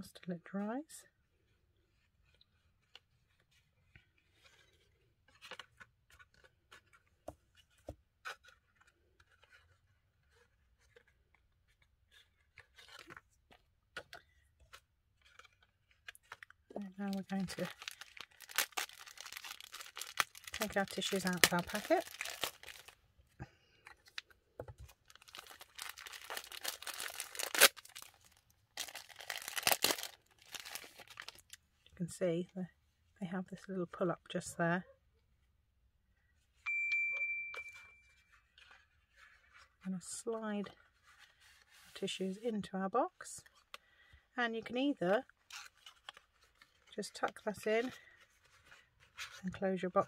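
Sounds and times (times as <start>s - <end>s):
plastic tissue packet crinkling: 15.2s - 23.1s, 23.7s - 31.6s.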